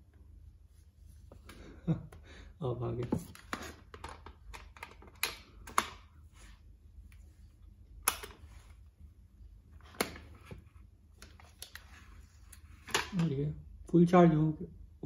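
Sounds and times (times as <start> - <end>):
cable handling: 3.0 - 6.2.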